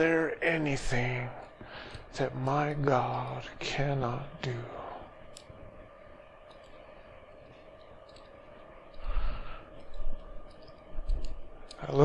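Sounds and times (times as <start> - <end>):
faint steady hum: 0.0 - 12.0
man breathing: 1.5 - 2.1, 8.9 - 10.1.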